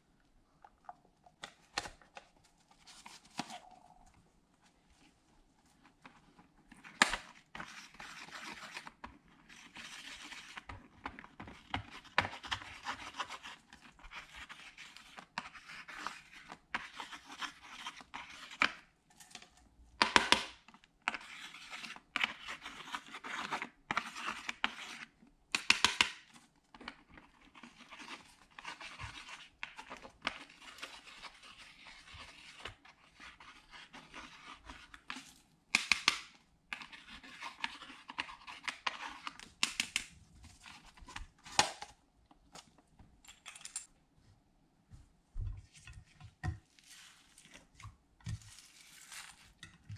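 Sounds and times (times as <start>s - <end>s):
plastic tool scraping powder: 6.0s - 18.8s, 21.0s - 25.7s, 27.0s - 35.4s, 36.7s - 39.6s.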